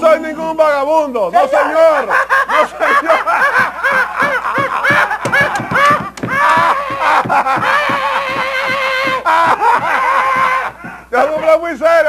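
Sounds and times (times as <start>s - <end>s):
man laughing loudly: 1.7s - 11.7s
man's long vocal cry: 5.4s - 10.8s.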